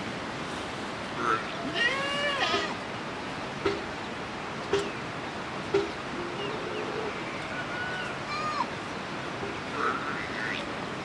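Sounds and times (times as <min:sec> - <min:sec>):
rushing background noise: 0:00.0 - 0:11.0
high animal call: 0:01.2 - 0:02.8
chickens clucking: 0:03.6 - 0:03.9.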